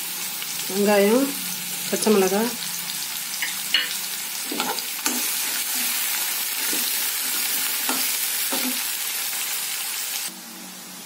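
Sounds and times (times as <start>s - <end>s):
onions sizzling in hot oil: 0.0s - 11.0s
metal spoon scraping a pan: 3.4s - 9.0s.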